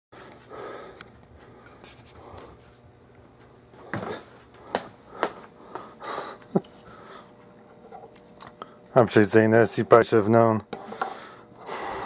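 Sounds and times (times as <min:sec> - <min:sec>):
breathing and sniffing: 0:00.2 - 0:02.7, 0:03.8 - 0:07.4, 0:10.8 - 0:12.0.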